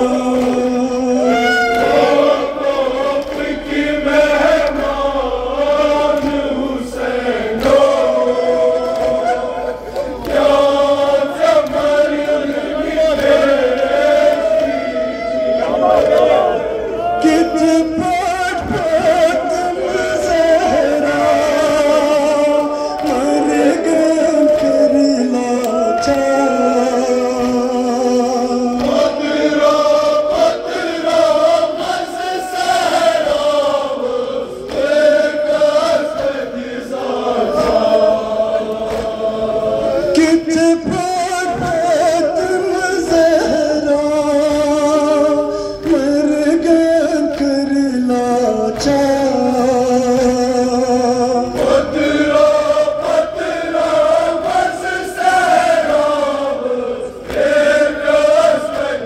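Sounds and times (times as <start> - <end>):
men chanting a sung lament: 0.0 - 59.0.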